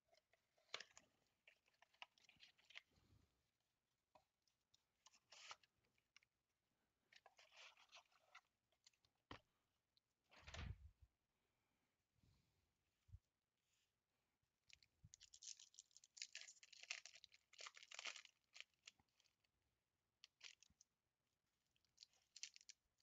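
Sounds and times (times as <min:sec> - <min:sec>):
plastic shrink wrap crinkling: 0:15.1 - 0:19.3, 0:20.2 - 0:20.7, 0:21.8 - 0:22.8.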